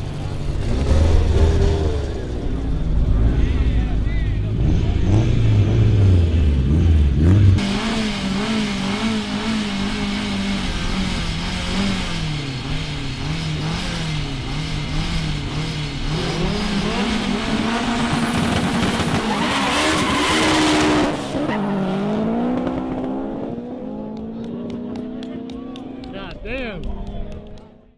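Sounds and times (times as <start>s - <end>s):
car engines revving: 0.0s - 27.9s
cars launching at full throttle: 4.4s - 26.1s.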